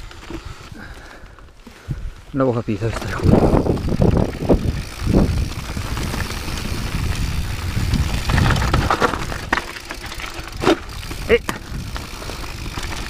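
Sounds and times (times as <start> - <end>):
bike rattling over stones: 0.0 - 13.0
bike tyres rumbling on gravel: 0.0 - 13.0.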